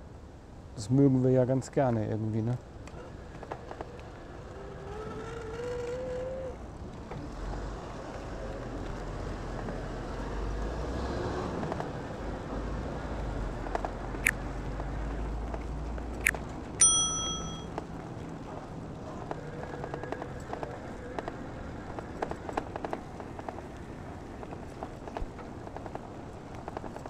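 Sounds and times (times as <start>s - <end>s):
sharp clicks: 16.2s - 16.4s
bicycle bell ding: 16.8s - 17.7s.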